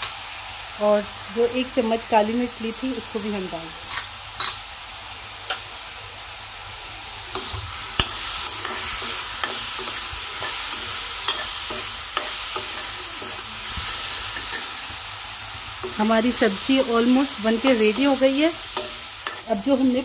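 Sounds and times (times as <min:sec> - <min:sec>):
vegetables sizzling in a pan: 0:00.0 - 0:20.0
steel spoon scraping a pan: 0:07.4 - 0:14.9, 0:15.8 - 0:20.0.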